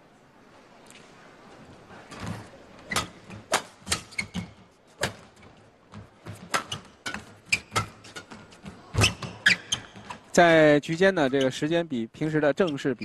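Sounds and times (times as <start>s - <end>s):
badminton rackets hitting shuttlecock: 2.9s - 9.8s.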